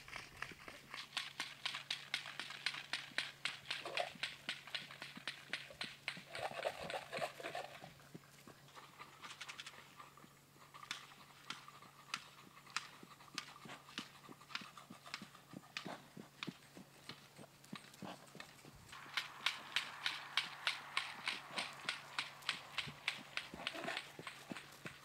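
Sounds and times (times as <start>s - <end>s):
horse hoofbeats trotting on grass: 0.0s - 25.0s.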